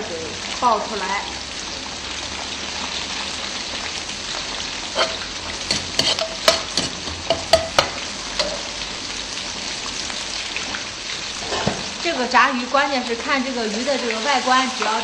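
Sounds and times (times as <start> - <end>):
hot oil sizzling in a wok: 0.0 - 15.0
metal utensil clinking against wok: 5.0 - 8.7.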